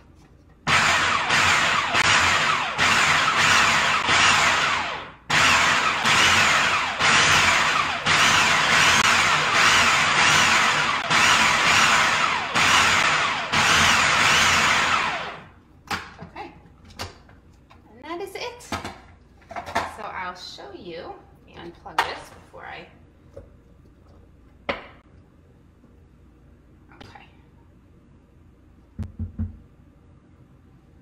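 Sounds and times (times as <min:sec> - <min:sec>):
food processor motor running: 0:00.7 - 0:15.5.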